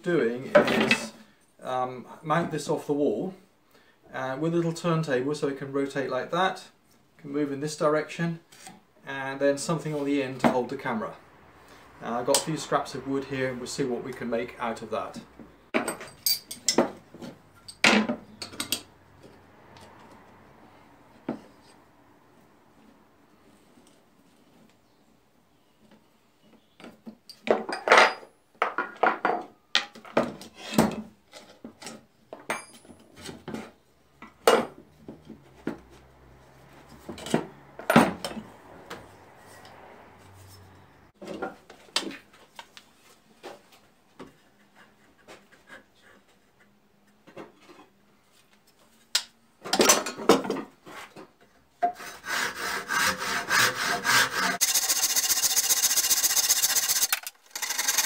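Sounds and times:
hand saw cutting wood: 51.8 - 58.0.

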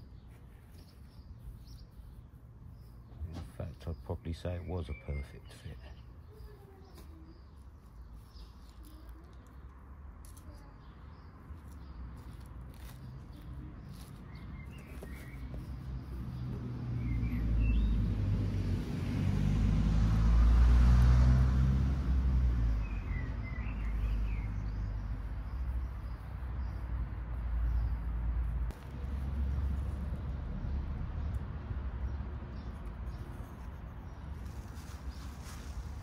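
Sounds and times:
small birds chirping: 0.0 - 18.3, 22.2 - 36.0
car driving past: 16.3 - 25.0.

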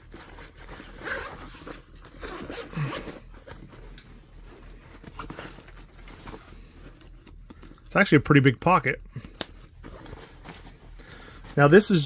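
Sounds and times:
zipper zipping: 0.2 - 3.6
fabric rustling: 9.7 - 12.0.

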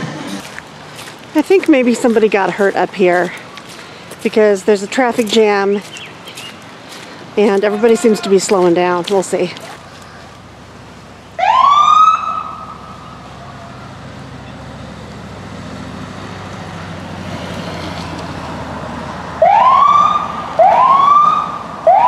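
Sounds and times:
low engine hum: 0.0 - 19.5
emergency vehicle siren: 11.4 - 14.1, 19.4 - 22.0.

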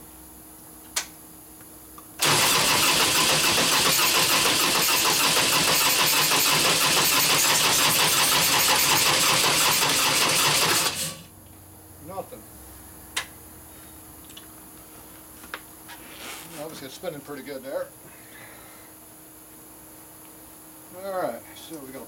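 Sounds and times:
electric starter cranking engine: 2.2 - 11.3.

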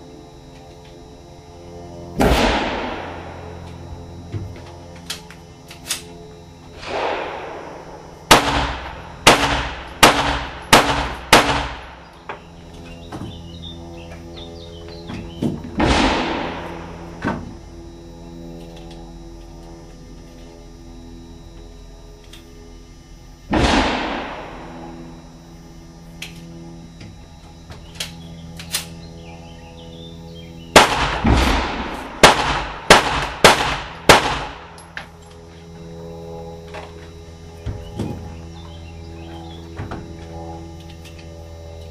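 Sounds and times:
pistol shots ringing: 2.2 - 3.4, 6.8 - 12.0, 15.8 - 16.9, 23.5 - 24.8, 30.7 - 34.8.

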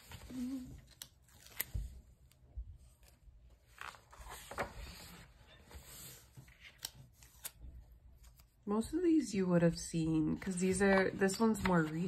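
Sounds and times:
paper page rustling: 0.0 - 7.6, 10.7 - 12.0.

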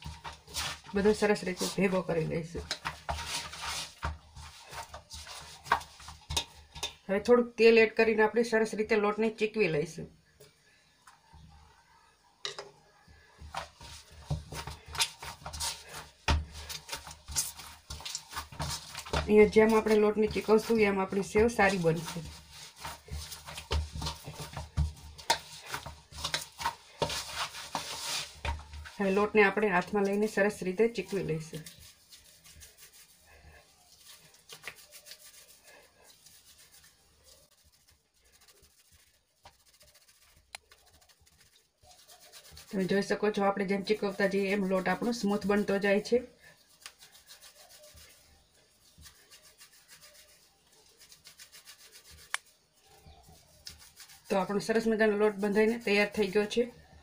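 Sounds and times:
hands kneading dough in metal basin: 0.0 - 11.9, 12.9 - 57.0.

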